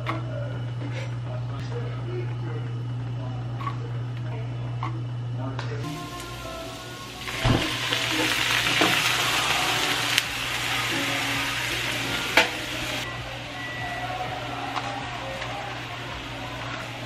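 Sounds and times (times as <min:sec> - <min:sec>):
frying pan sizzling: 0:05.9 - 0:13.1.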